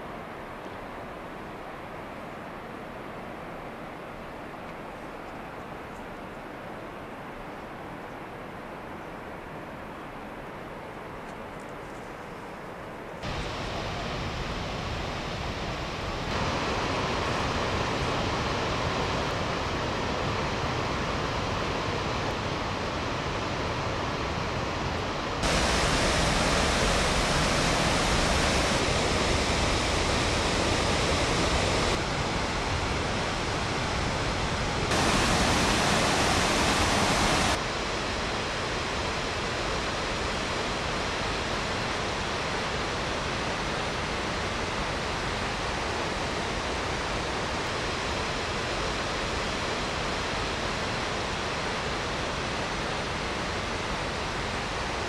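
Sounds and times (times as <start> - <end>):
waterfall rushing: 13.2 - 55.0.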